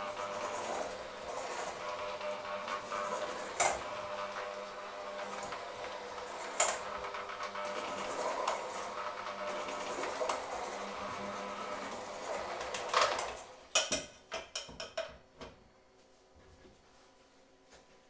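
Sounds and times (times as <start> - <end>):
electric hand mixer running: 0.0 - 13.8.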